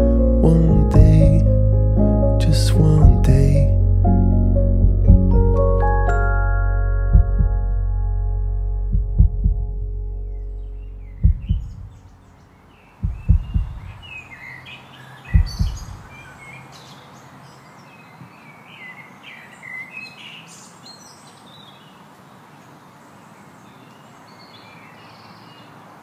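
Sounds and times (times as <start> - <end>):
deep low thumps: 0.0 - 12.2, 13.0 - 14.1, 15.3 - 16.1
birds chirping: 10.2 - 25.8
steady outdoor hiss: 10.8 - 26.0.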